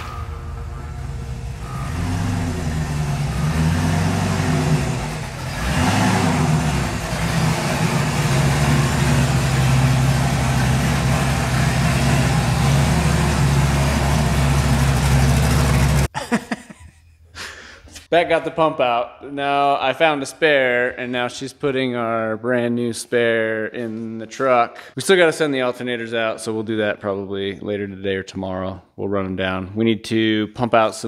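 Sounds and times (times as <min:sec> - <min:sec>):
car engine revving: 0:00.0 - 0:16.1.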